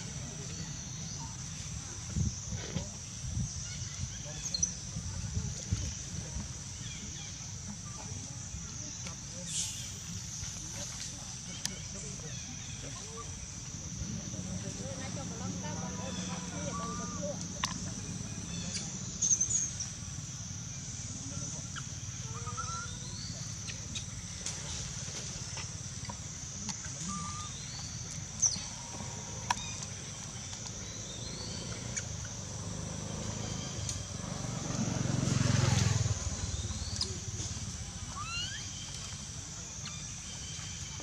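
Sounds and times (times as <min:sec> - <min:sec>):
vehicle passing: 0:31.4 - 0:37.6.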